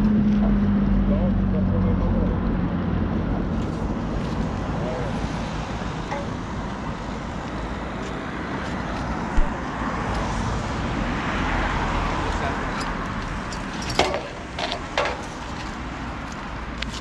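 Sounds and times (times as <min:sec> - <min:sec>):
outdoor rumble: 0:00.0 - 0:17.0.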